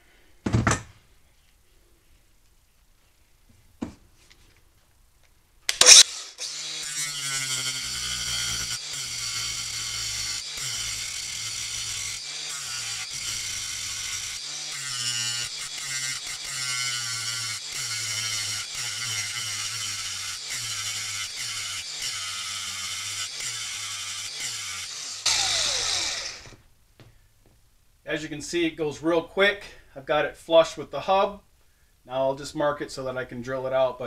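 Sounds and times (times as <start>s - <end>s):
angle grinder grinding metal: 5.7s - 26.6s.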